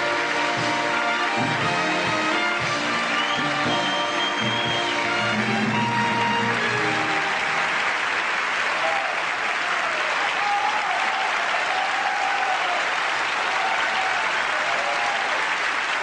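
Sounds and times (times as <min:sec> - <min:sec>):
music: 0:00.0 - 0:08.0
audience applauding: 0:00.0 - 0:16.0.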